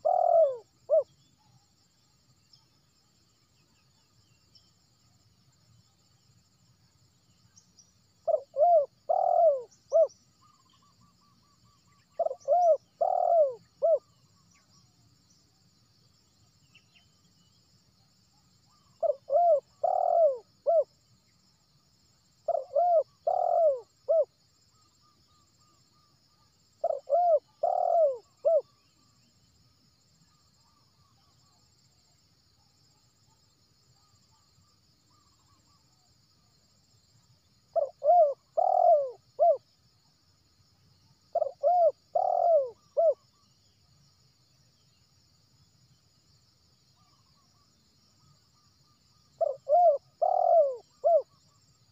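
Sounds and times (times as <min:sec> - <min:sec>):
dove cooing: 0:00.0 - 0:01.1, 0:08.2 - 0:10.1, 0:12.2 - 0:14.1, 0:19.0 - 0:20.9, 0:22.5 - 0:24.3, 0:26.8 - 0:28.7, 0:37.7 - 0:39.6, 0:41.3 - 0:43.2, 0:49.4 - 0:51.4
faint high insect buzz: 0:00.0 - 0:51.9.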